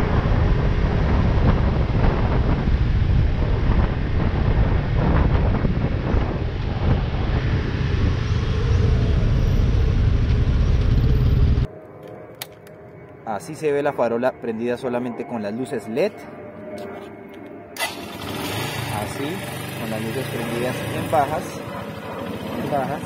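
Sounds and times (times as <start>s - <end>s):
wind rush on microphone: 0.0s - 11.7s
motorcycle engine running: 17.8s - 22.7s.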